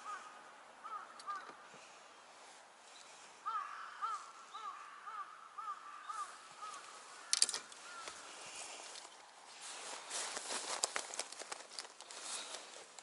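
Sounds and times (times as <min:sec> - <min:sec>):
bird calling: 0:00.0 - 0:02.2, 0:02.9 - 0:09.3.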